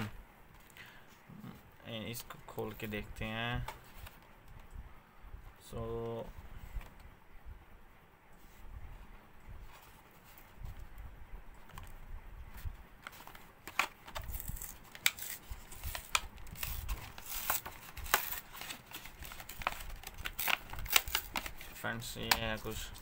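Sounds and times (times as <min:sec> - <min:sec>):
plastic packaging crinkling: 0:13.0 - 0:23.0.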